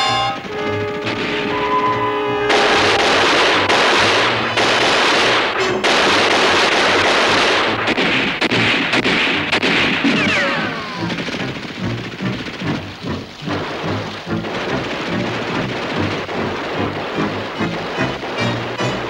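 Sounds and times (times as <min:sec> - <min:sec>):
heavy gunfire: 0:00.0 - 0:01.8, 0:02.4 - 0:19.0
falling whistle: 0:00.0 - 0:03.1.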